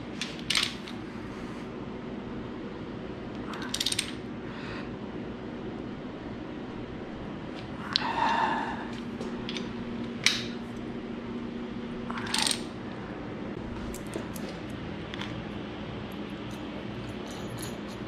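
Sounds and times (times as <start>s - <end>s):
faint steady hum: 0.0s - 18.0s
metal clinks and scrapes: 16.4s - 18.0s.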